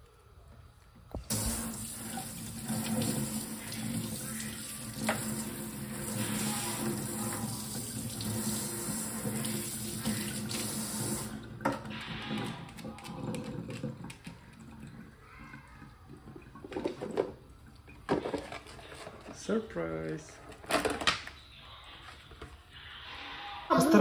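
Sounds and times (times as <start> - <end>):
water tap running into sink: 1.2 - 17.8.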